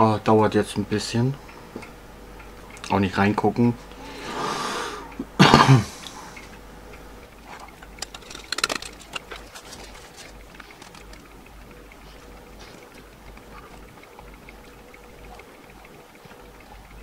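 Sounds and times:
man breathing: 3.9s - 5.2s
man's low throat cough: 5.4s - 6.0s
faint clicks: 6.0s - 17.0s.

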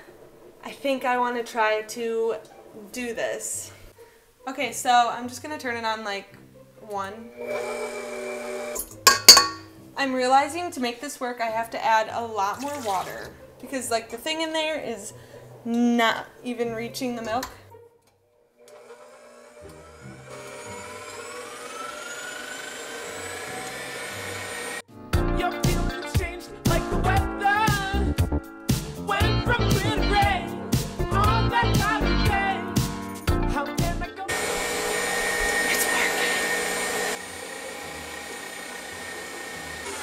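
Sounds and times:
stand mixer motor whirring: 7.3s - 8.8s, 18.6s - 24.8s, 34.3s - 40.0s.

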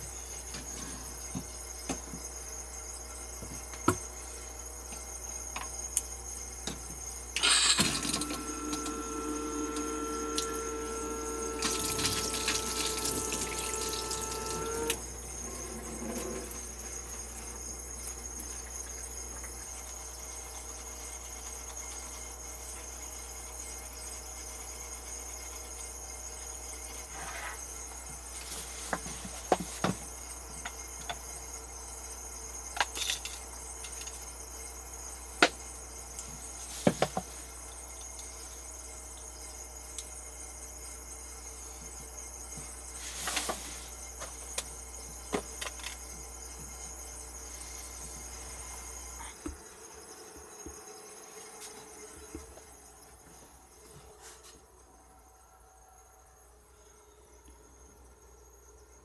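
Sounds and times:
water pump humming: 7.3s - 22.6s
tap water running into sink: 11.6s - 14.8s.

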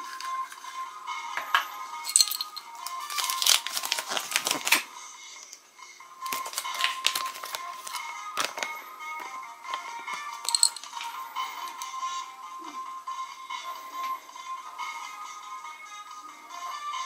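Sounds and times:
faint background music: 0.0s - 17.0s
plastic bag and paper crinkling: 2.9s - 4.9s, 6.3s - 8.7s.

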